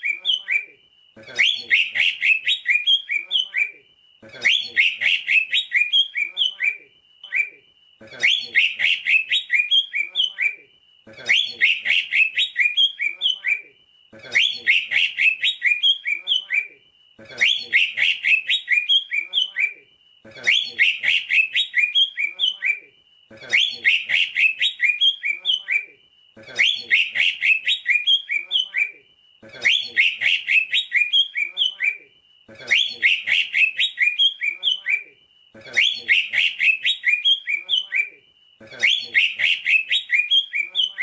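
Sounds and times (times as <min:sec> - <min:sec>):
bird chattering song: 0:00.0 - 0:41.0
short rising bird whistle: 0:20.5 - 0:22.8, 0:26.6 - 0:28.9, 0:32.7 - 0:35.0, 0:38.8 - 0:40.7.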